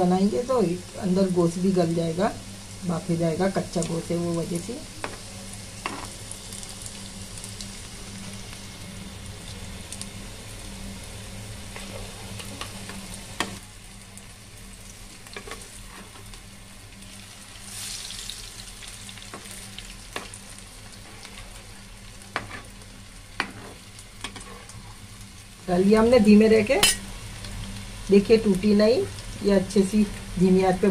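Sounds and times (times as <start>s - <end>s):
meat patties sizzling in oil: 0.0s - 30.9s.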